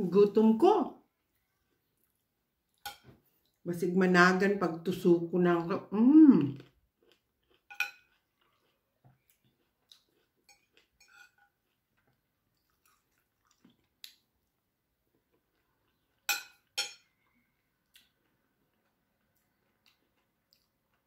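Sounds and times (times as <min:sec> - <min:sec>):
cutlery clinking on a plate: 0:02.8 - 0:03.2, 0:07.6 - 0:08.2, 0:10.5 - 0:11.6, 0:16.2 - 0:17.1
faint chewing: 0:06.4 - 0:21.0.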